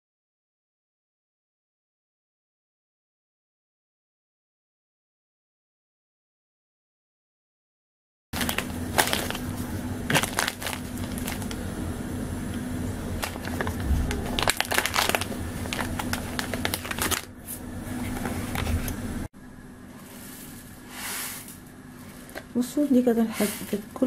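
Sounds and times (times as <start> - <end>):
plastic packet crinkling: 8.4 - 11.7, 13.2 - 18.8
low steady hum: 8.4 - 24.0.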